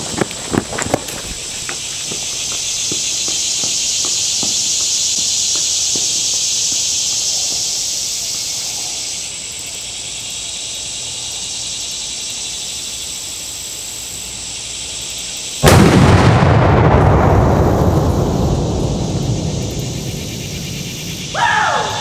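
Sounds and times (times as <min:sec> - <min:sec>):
steady high hiss: 0:01.1 - 0:16.5, 0:17.2 - 0:22.0
firework banger exploding: 0:15.6 - 0:21.4.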